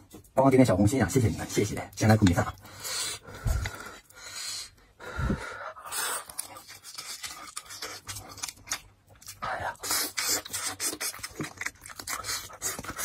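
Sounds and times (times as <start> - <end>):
breathy puffs and mouth noises: 2.5 - 8.2.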